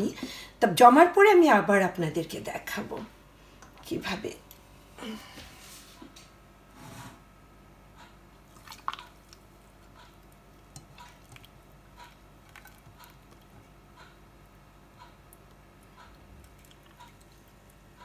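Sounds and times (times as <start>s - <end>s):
ghee dripping through strainer: 8.4s - 18.0s.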